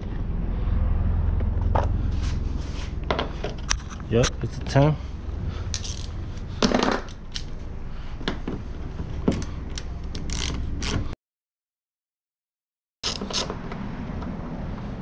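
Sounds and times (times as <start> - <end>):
metal tools and screws clinking: 5.7 - 7.6.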